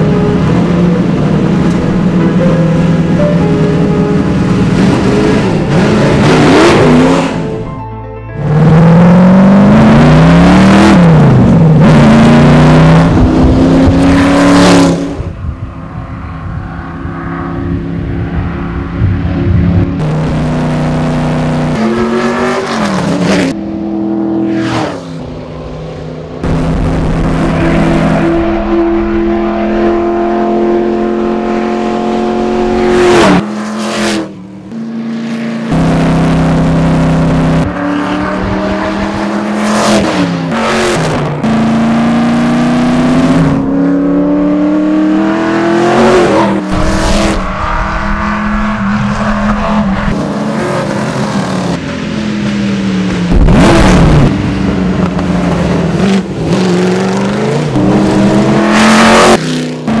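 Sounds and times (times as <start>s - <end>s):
racing car engine revving: 4.6s - 7.6s, 8.4s - 15.4s, 16.4s - 60.0s
racing car passing by: 44.4s - 51.8s.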